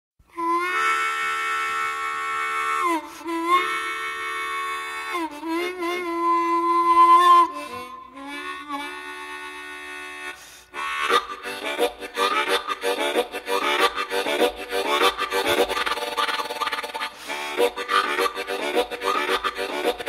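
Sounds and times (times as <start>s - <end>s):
harmonica wailing bent chords: 0.3s - 20.0s.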